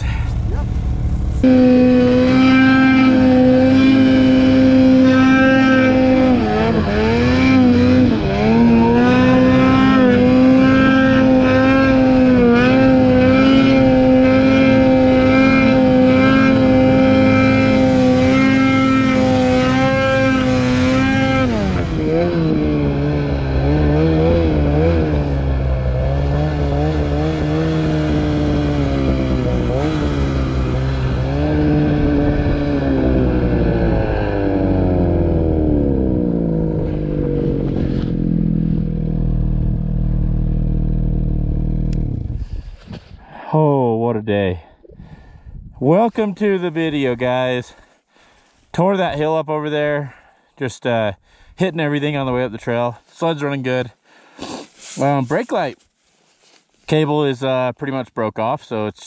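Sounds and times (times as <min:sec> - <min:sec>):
snowmobile engine revving: 0:00.0 - 0:42.7, 0:54.4 - 0:55.8.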